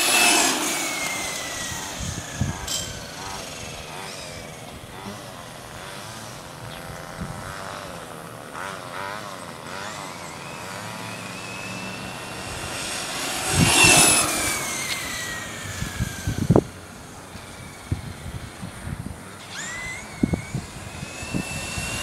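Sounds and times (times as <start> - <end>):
toy truck motor whining: 0.0 - 22.0.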